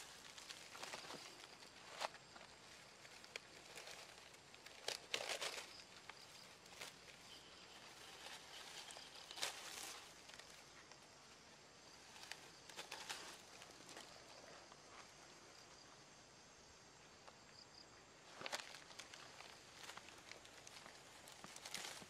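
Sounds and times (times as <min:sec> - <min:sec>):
dry grass rustling and tearing: 0:00.0 - 0:11.0, 0:11.9 - 0:14.5, 0:18.3 - 0:22.0.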